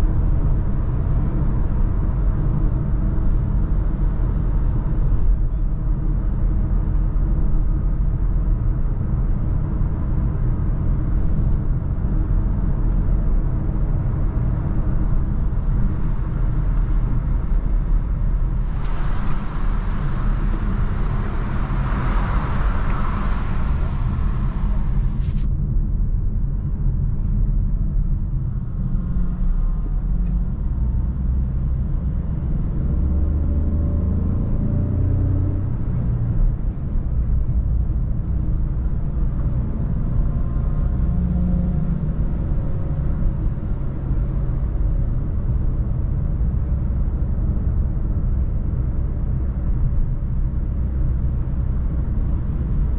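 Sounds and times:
car engine rumble: 0:00.0 - 0:52.9
road noise: 0:00.0 - 0:52.9
car accelerating: 0:18.3 - 0:25.4.

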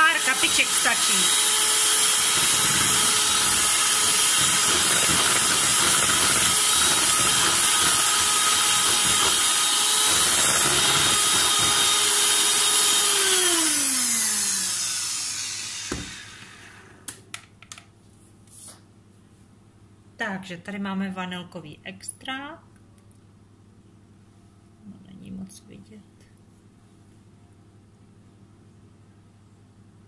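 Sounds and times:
electric mixer whisking batter: 0:00.0 - 0:17.0.

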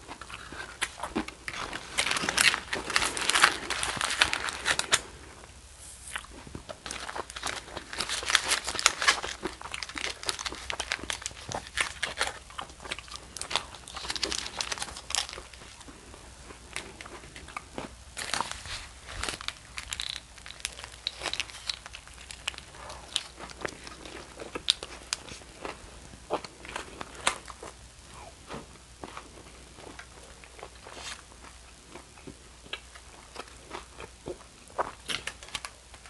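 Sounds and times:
biting and chewing: 0:00.0 - 0:05.1, 0:06.1 - 0:36.0
aluminium foil crinkling: 0:00.1 - 0:05.2, 0:06.0 - 0:16.0, 0:16.7 - 0:25.8, 0:34.8 - 0:36.0.

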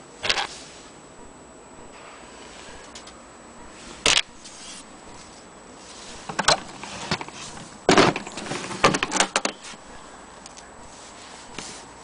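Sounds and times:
case scuffs and knocks: 0:06.3 - 0:09.6.

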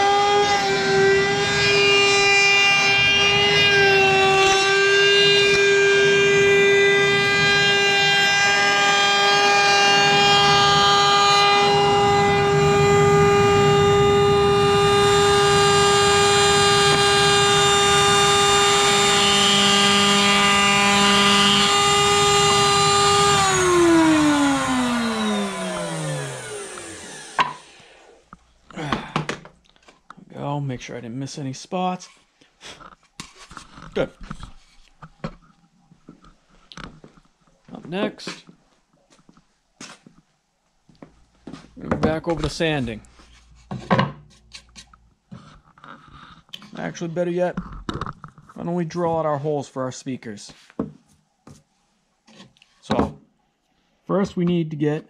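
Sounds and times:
sanding machine motor whine: 0:00.0 - 0:28.3, 0:41.7 - 0:43.7.

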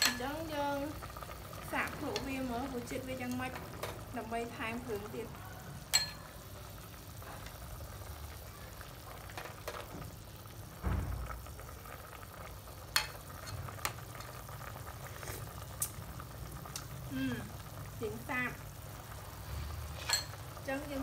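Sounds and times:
soup bubbling in a pot: 0:00.0 - 0:21.0
metal ladle clinking on pot: 0:05.9 - 0:06.3, 0:20.0 - 0:20.4
dull thump: 0:10.8 - 0:11.3.

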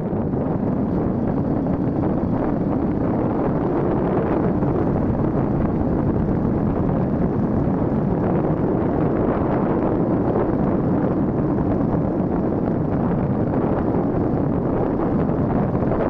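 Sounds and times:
vehicle running noise: 0:00.0 - 0:16.0
wind buffeting microphone: 0:00.0 - 0:16.0.

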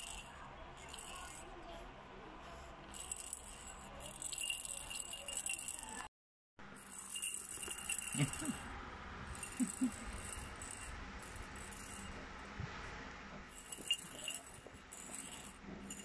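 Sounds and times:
baby rattle shaking: 0:00.0 - 0:01.5, 0:02.8 - 0:06.1, 0:06.8 - 0:08.6, 0:09.3 - 0:12.2, 0:13.5 - 0:16.0.

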